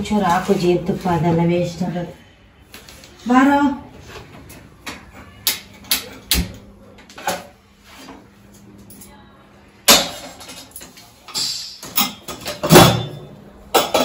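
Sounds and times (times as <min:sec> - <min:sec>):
steel pots clanking on stove: 0:11.9 - 0:14.0.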